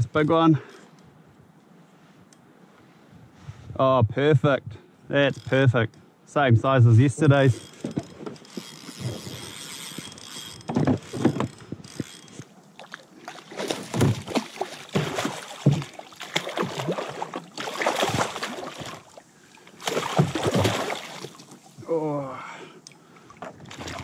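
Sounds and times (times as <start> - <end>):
gear knocking against hull: 7.4 - 12.4
fish thrashing and splashing: 12.8 - 21.8, 23.6 - 24.0.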